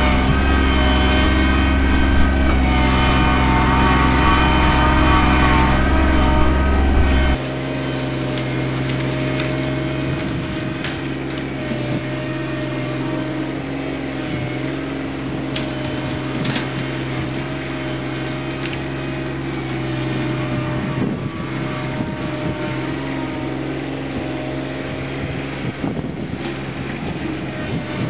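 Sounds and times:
tractor diesel engine under load: 0.0 - 28.0
branches snapping: 8.4 - 11.5.

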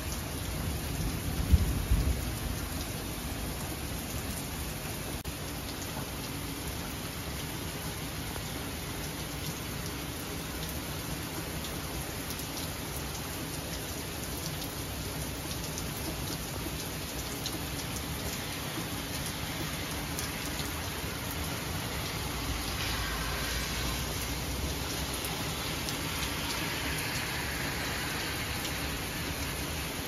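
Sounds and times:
heavy rain pouring: 0.0 - 30.0
raindrops tapping close by: 0.9 - 4.4, 9.0 - 30.0
car tyres hissing on wet road: 17.8 - 30.0.

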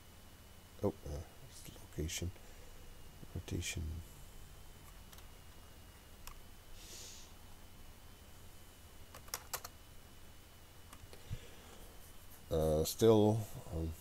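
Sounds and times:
faint keyboard clicks: 9.1 - 9.7.

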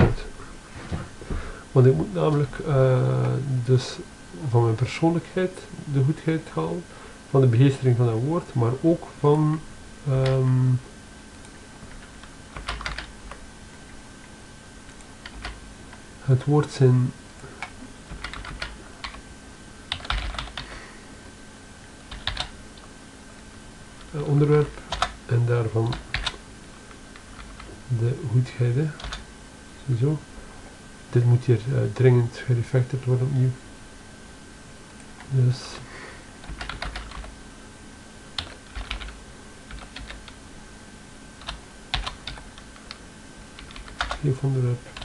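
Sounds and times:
faint steady hum: 0.0 - 45.0
computer keyboard typing: 11.4 - 13.4, 14.9 - 15.6, 17.6 - 19.2, 19.9 - 20.7, 22.1 - 22.6, 24.9 - 25.2, 25.8 - 26.4, 29.0 - 29.2, 36.4 - 37.3, 38.4 - 40.4, 41.4 - 43.0, 43.6 - 44.2.

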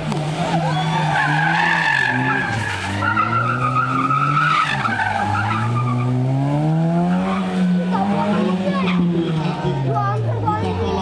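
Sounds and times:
racing car engine revving: 0.0 - 11.0
tyres squealing: 0.3 - 6.3.

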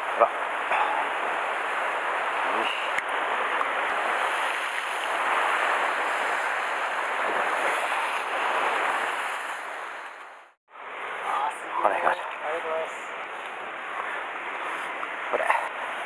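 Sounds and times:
waves breaking on rocky shore: 0.0 - 10.6.

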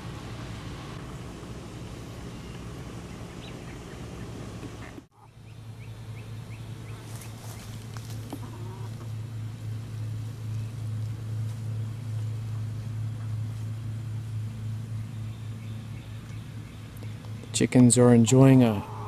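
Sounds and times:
steady low hum: 0.0 - 19.0
hens clucking softly: 8.3 - 9.1, 18.8 - 19.0.

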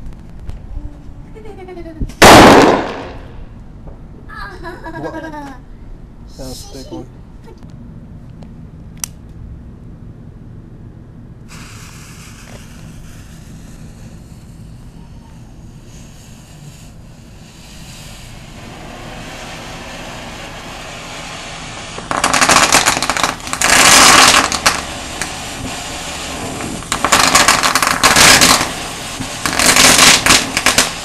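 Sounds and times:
firework dense rapid crackling: 2.2 - 3.5, 11.5 - 31.0
ground fountain firework hissing: 2.2 - 3.5, 11.4 - 31.0.

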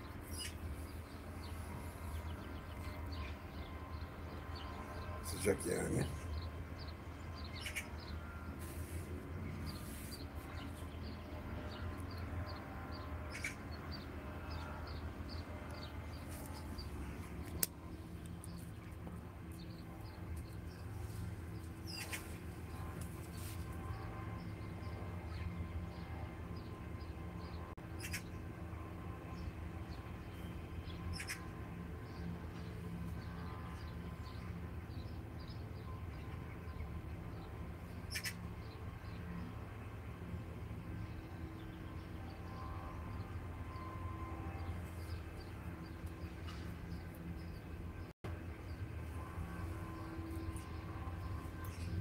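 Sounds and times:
small birds chirping: 0.0 - 26.0, 27.4 - 28.4, 29.4 - 31.5, 32.1 - 39.5
low steady hum: 0.0 - 52.0.

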